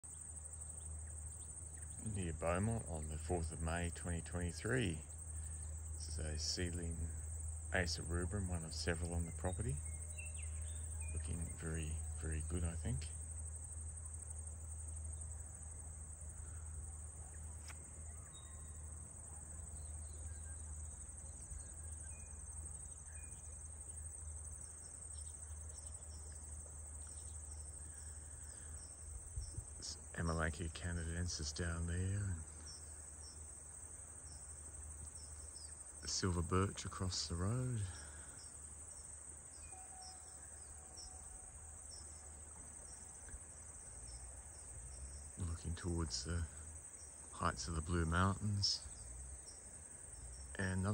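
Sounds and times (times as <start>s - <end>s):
low steady rumble: 0.0s - 32.7s
cricket chorus trilling: 0.0s - 50.9s
steady high hiss: 0.0s - 50.9s
insect-like high chirps: 0.1s - 13.1s, 15.0s - 30.2s, 31.6s - 50.9s.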